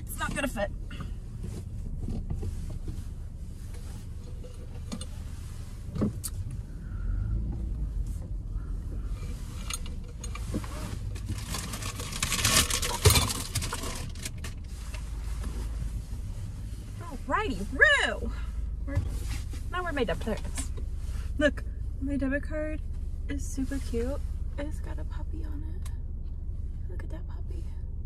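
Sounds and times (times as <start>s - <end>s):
car engine humming: 0.0s - 28.0s
rustle and clatter of handling: 0.2s - 6.6s, 7.6s - 17.3s, 18.8s - 21.4s.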